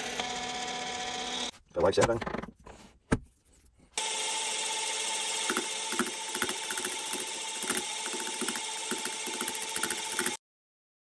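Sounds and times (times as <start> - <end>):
power tool motor whining: 0.0 - 1.5, 4.0 - 10.4
tool knocking and ticking: 5.4 - 10.4.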